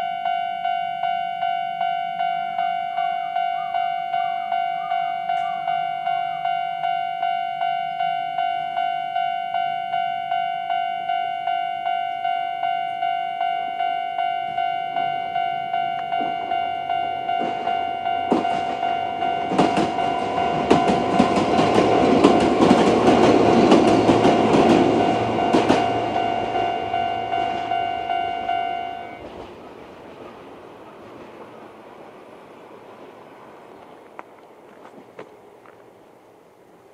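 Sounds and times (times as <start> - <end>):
level-crossing warning bell: 0.0 - 29.8
train wheels clacking over joints: 17.4 - 27.8.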